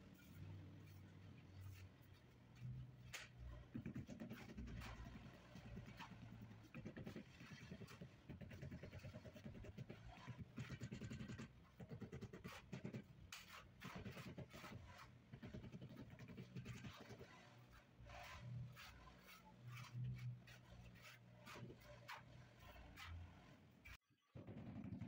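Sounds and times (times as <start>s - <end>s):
shovel scraping through mortar: 16.7s - 24.0s.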